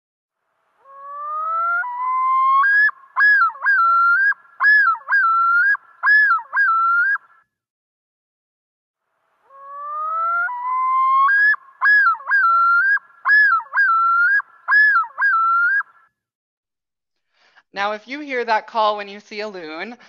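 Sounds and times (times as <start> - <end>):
loon yodel: 0.8 - 7.4, 9.5 - 16.0.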